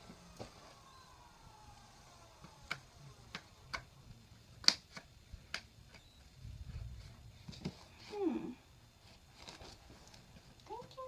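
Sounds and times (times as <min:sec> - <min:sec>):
hand tools clicking and snapping: 0:02.5 - 0:03.9.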